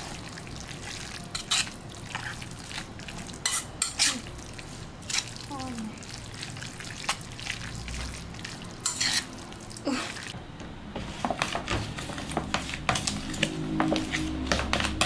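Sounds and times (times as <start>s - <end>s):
metal utensil scraping a steel bowl: 1.3s - 2.4s, 3.4s - 4.3s, 8.8s - 9.3s
fork tossing vegetables in plastic bowl: 11.0s - 15.0s.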